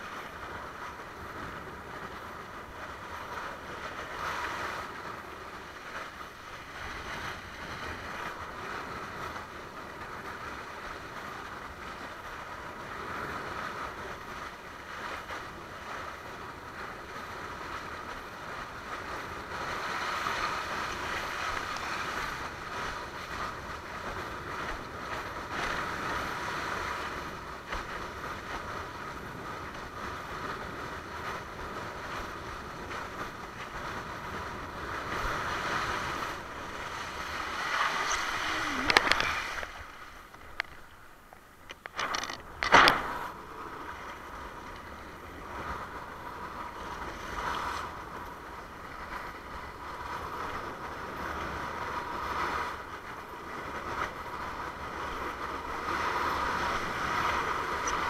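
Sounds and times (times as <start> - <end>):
wind on microphone: 0.0 - 58.0
water rushing and hissing: 34.5 - 45.2.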